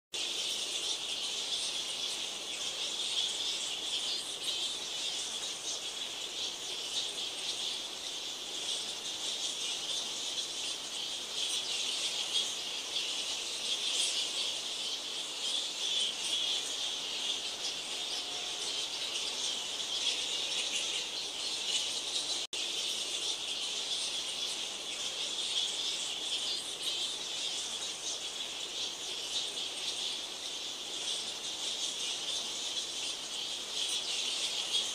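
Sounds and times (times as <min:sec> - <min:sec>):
fruit bats calling: 0:00.2 - 0:34.9.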